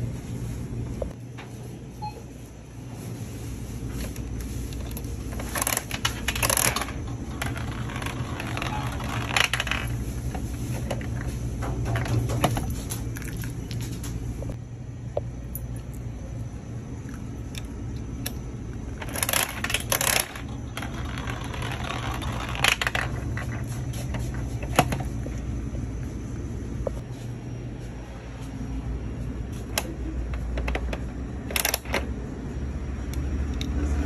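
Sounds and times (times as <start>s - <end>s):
steady low hum: 0.0s - 34.0s
gumball rolling down plastic spiral: 5.6s - 10.0s, 19.0s - 23.7s.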